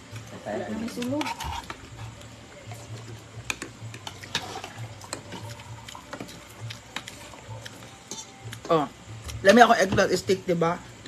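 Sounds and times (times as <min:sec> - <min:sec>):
food clicks and taps on plate: 0:03.4 - 0:04.4.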